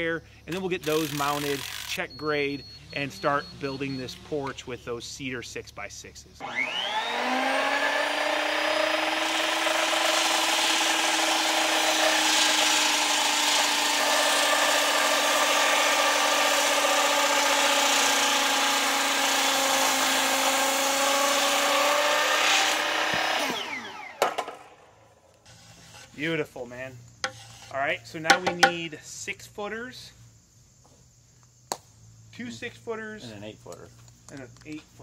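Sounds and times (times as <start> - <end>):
circular saw cutting timber: 0.5 - 2.2, 6.4 - 24.7, 25.4 - 28.8.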